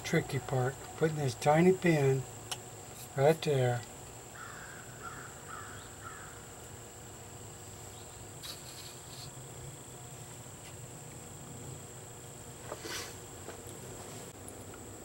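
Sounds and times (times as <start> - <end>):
high-pitched insect drone: 0.0 - 10.0
crow cawing: 4.3 - 6.5.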